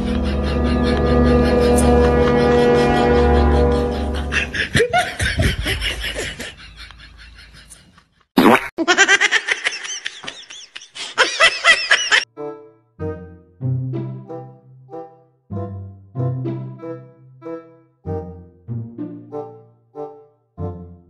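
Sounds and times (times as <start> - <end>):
rapid repeated laughter: 0.0 - 8.1.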